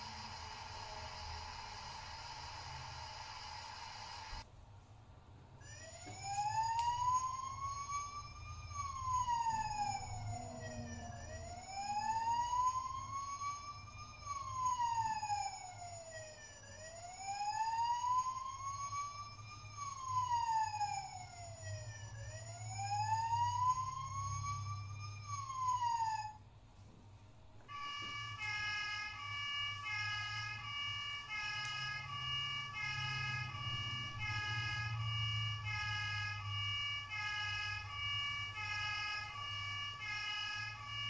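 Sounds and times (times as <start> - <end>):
toy ambulance wail siren: 0.0 - 4.4, 5.6 - 26.4, 27.7 - 41.0.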